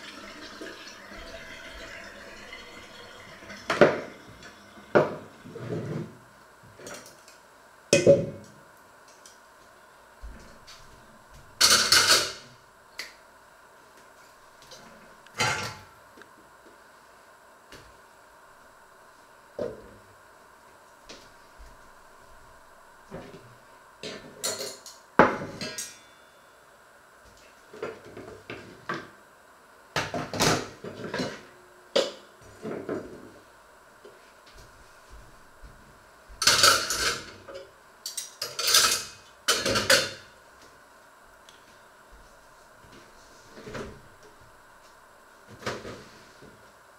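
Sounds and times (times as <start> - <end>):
pots and pans clattering: 11.6 - 12.4, 24.1 - 26.0, 36.4 - 37.3, 38.2 - 40.2.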